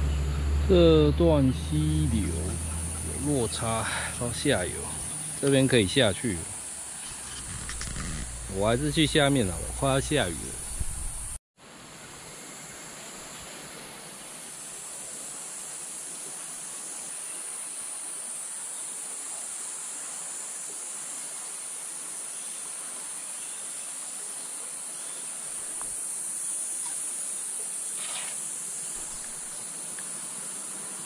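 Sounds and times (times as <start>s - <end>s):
insects droning: 0.0s - 31.0s
stream rushing: 0.7s - 17.0s.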